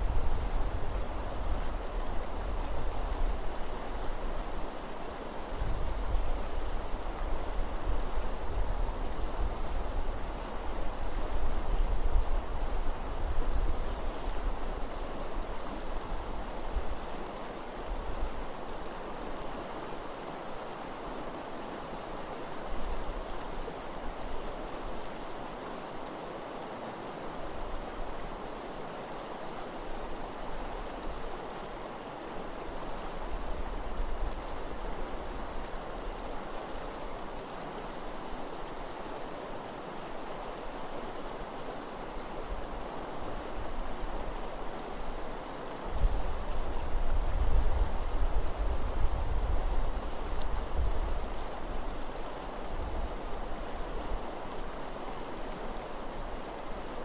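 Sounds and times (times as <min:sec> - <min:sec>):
wind rumble on microphone: 0:00.0 - 0:17.0, 0:43.4 - 0:54.3
river rushing over gravel: 0:00.0 - 0:57.0.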